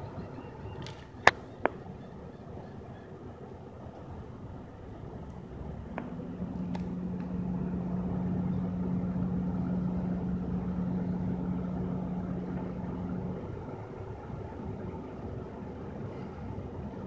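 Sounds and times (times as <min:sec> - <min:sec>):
low hum: 0:04.0 - 0:17.0
car engine idling: 0:04.3 - 0:17.0.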